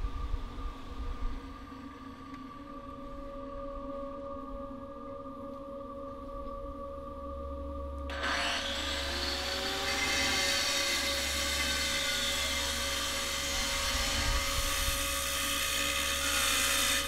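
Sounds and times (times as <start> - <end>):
angle grinder cutting stone: 8.1 - 17.0.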